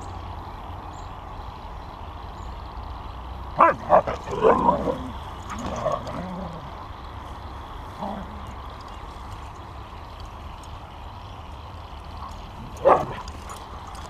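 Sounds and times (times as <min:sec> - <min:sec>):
dog barking: 0:03.6 - 0:04.5
dogs yipping and grumbling: 0:03.6 - 0:06.8, 0:12.2 - 0:14.0.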